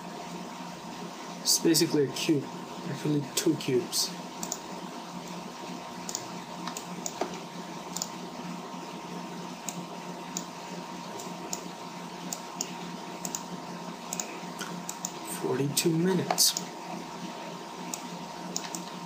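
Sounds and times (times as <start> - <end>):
steady low hum: 0.0 - 19.0
mouse and keyboard clicks: 4.4 - 4.6, 17.9 - 18.9.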